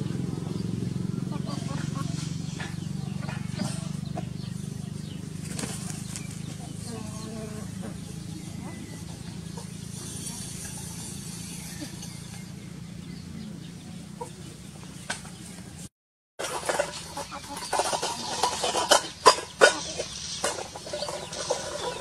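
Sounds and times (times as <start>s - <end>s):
steady low hum: 0.0s - 15.9s
chicken clucking: 0.3s - 10.7s, 13.4s - 15.6s, 16.4s - 22.0s.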